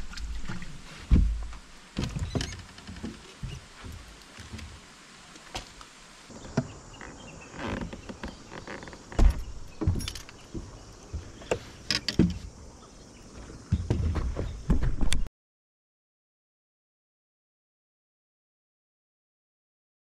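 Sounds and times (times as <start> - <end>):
footsteps on boat deck: 0.4 - 4.8, 6.4 - 12.6, 13.3 - 15.3.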